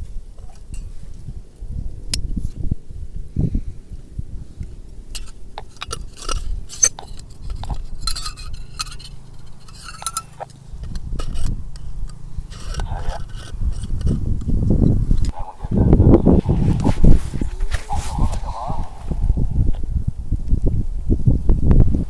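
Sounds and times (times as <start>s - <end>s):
metal parts clinking and scraping: 5.1s - 14.2s.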